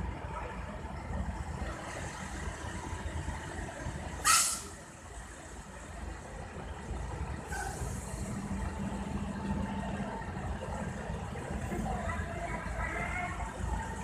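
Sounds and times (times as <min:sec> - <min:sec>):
vehicle engines idling: 0:00.0 - 0:14.0
air brakes hissing: 0:04.2 - 0:04.8, 0:07.5 - 0:08.4.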